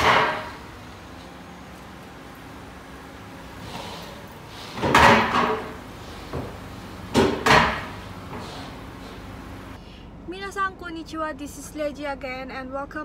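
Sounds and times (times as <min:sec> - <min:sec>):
heavy clunks: 0:00.0 - 0:01.3, 0:03.0 - 0:09.7.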